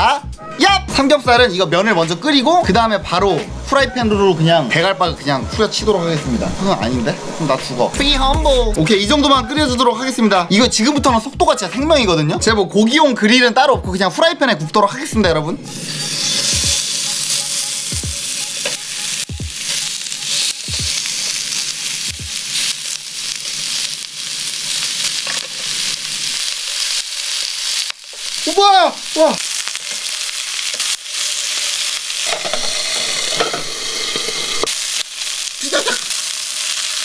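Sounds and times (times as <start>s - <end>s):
pork sizzling in a frying pan: 15.7s - 37.0s.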